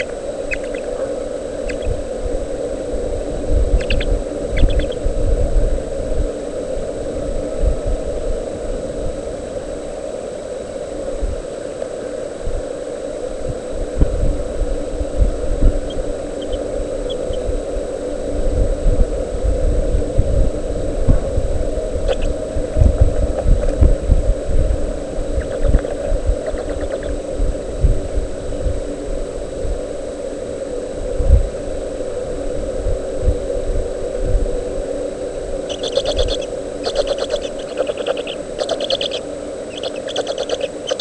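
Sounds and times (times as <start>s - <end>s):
steady low hum: 0.0s - 41.0s
low thumps and rumbles: 3.4s - 6.3s, 18.5s - 28.8s.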